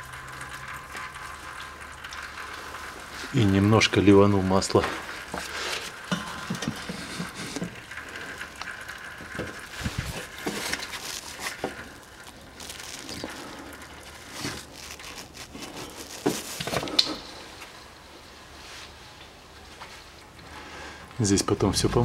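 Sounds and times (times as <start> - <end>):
oil pouring and splashing: 0.0 - 18.2
plastic bottle crinkling: 4.6 - 17.8.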